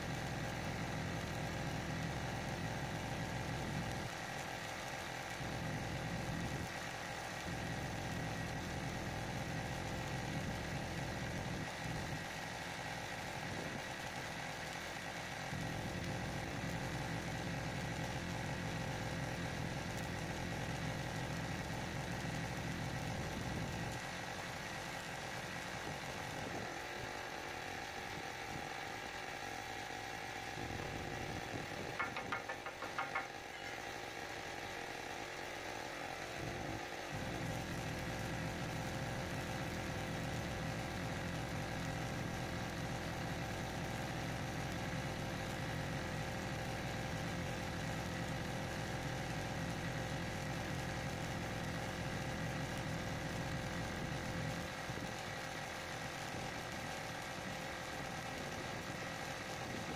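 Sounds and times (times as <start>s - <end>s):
machine drone: 30.5s - 35.5s.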